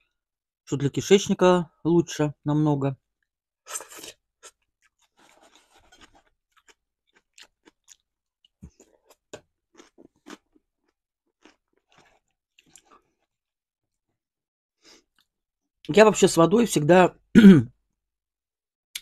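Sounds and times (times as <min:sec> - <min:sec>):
person chewing: 0:03.7 - 0:13.5.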